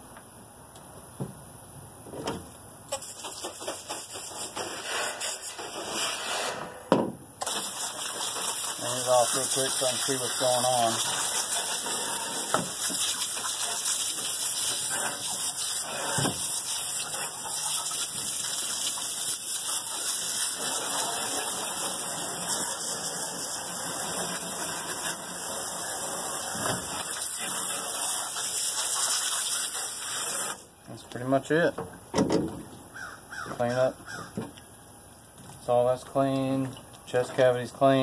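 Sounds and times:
hose nozzle spraying water: 2.9s - 5.8s, 7.4s - 30.7s
water splashing on metal: 7.4s - 30.6s.

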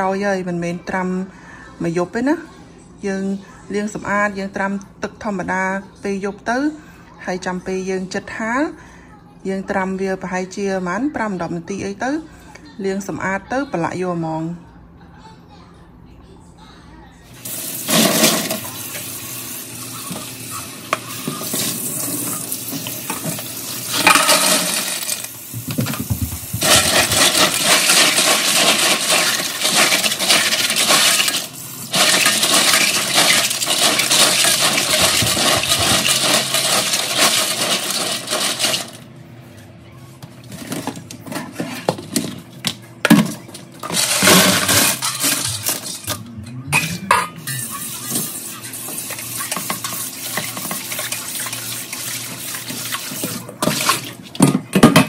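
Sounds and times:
tap water running into sink: 17.4s - 27.5s.

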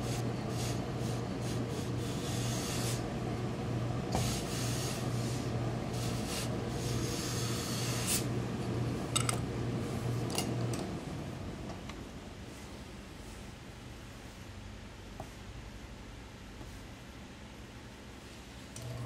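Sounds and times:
steam iron hissing: 0.0s - 3.1s, 4.1s - 8.3s
steady low hum: 0.0s - 19.0s.

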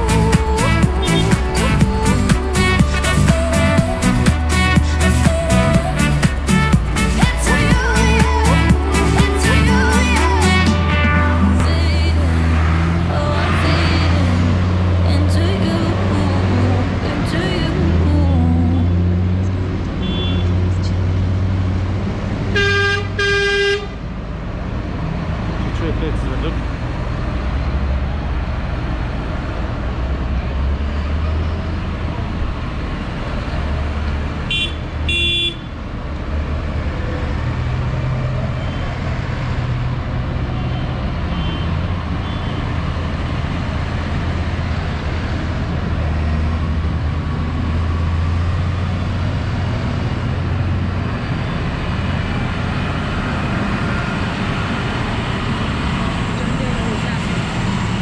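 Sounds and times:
tractor engines driving past: 0.0s - 58.0s
vehicle horn toots: 0.6s - 9.7s, 10.4s - 11.9s, 20.0s - 20.7s, 22.5s - 24.0s, 34.5s - 35.8s, 40.6s - 42.7s.

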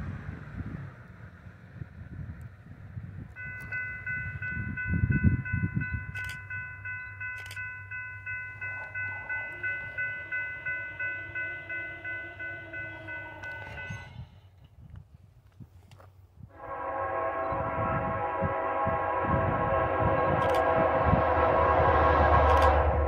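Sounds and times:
wind rumble on microphone: 0.0s - 7.2s, 13.6s - 23.0s
crossing bell ringing: 3.3s - 14.3s, 16.6s - 23.0s
distant locomotive horn: 3.4s - 14.4s, 16.5s - 23.0s.

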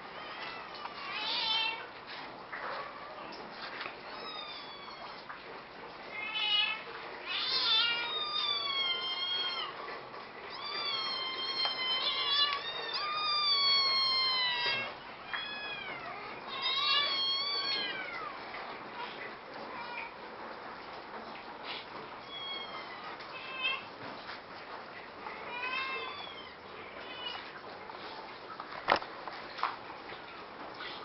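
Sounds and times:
cats meowing: 0.1s - 2.0s, 2.7s - 5.4s, 6.1s - 20.2s, 22.2s - 24.0s, 25.2s - 27.6s.

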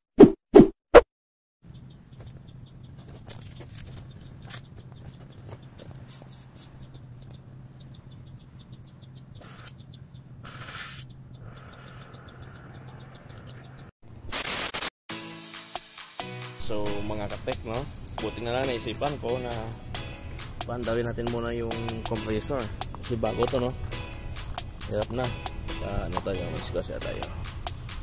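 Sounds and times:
small birds chirping: 1.6s - 14.0s, 16.6s - 28.0s
rustling noise: 2.2s - 7.2s.

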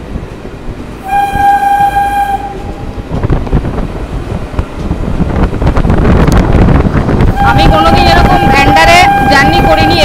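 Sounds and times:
moving train rumble: 0.0s - 10.0s
train horn blast: 1.0s - 2.9s, 7.3s - 10.0s.

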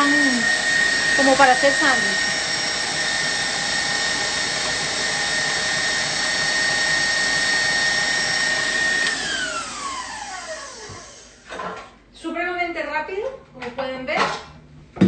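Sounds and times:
stand mixer whining: 0.0s - 11.5s.

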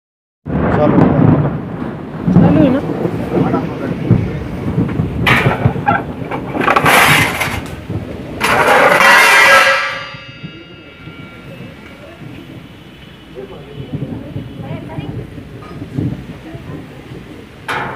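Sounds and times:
low rumbling noise: 0.5s - 17.9s
metal utensils clattering: 8.4s - 11.9s
ringing metallic clang: 8.4s - 12.6s.

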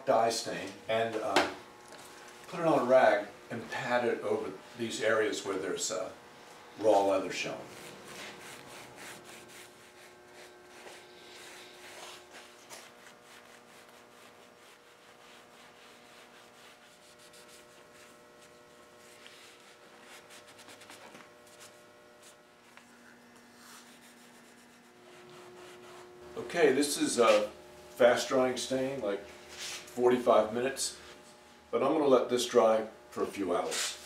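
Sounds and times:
faint steady hum: 0.0s - 34.0s
rag rubbing on leather: 7.0s - 22.4s, 23.5s - 26.2s.

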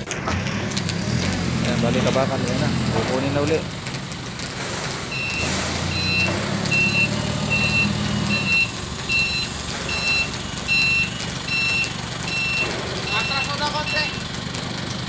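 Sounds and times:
forklift engine running: 0.0s - 15.0s
forklift backup alarm beeping: 5.1s - 14.4s.

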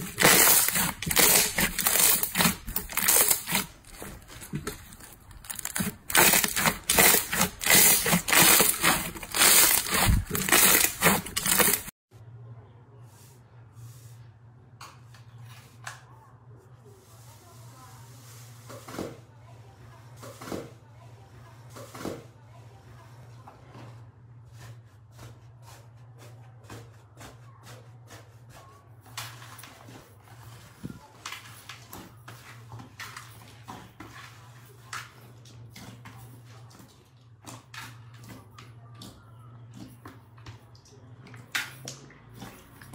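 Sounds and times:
slime squishing and crackling: 0.0s - 11.9s.

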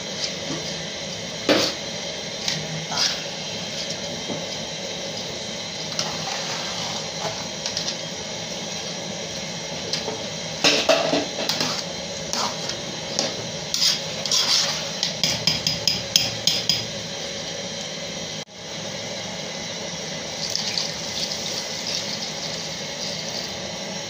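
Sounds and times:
metal spoon scraping pot: 13.7s - 15.8s.

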